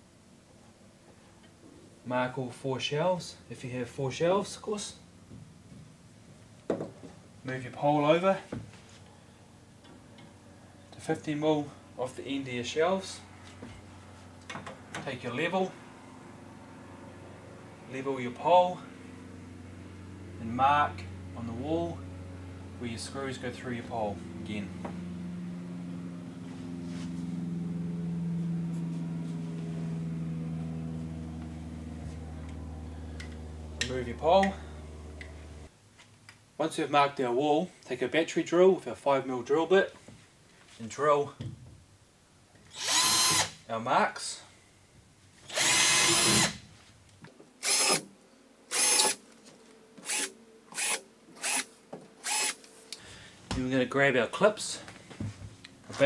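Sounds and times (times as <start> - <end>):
machine hum: 18.8 - 35.7, 47.6 - 53.4
drill whirring: 42.7 - 43.6, 45.5 - 46.6, 47.6 - 48.1, 48.7 - 49.2, 50.0 - 52.7.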